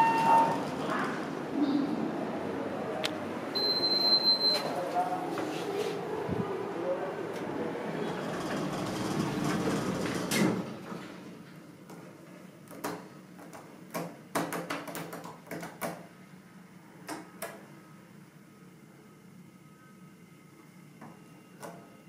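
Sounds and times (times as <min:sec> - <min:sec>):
elevator stopping clack: 0:00.0 - 0:01.4, 0:08.1 - 0:11.2
elevator running rumble: 0:00.0 - 0:12.3
sliding doors knocking and rattling: 0:08.2 - 0:11.2
faint steady hum: 0:16.2 - 0:22.0.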